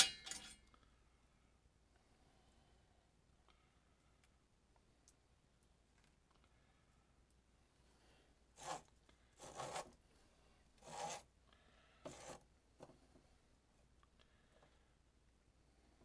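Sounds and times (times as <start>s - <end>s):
drain snake cable scraping: 8.6s - 10.0s, 10.8s - 11.3s.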